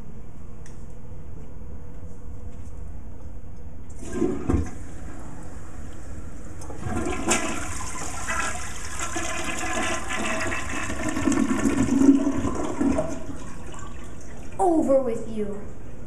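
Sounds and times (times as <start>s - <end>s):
toilet flushing: 4.0s - 14.6s.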